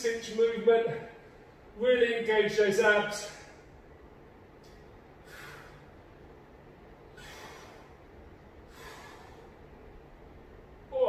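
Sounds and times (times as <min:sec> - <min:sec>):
man breathing hard: 0:05.2 - 0:06.1, 0:07.1 - 0:09.7.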